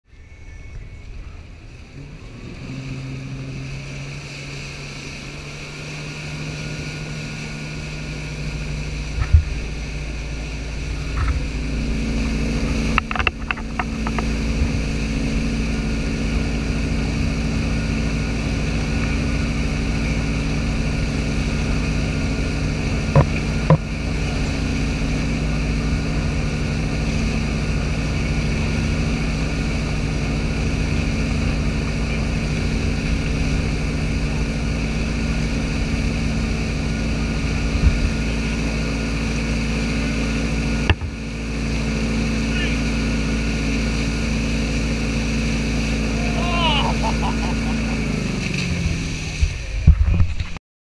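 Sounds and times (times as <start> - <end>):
boat engine running: 0.0 - 50.6
water rushing in wake: 0.1 - 50.6.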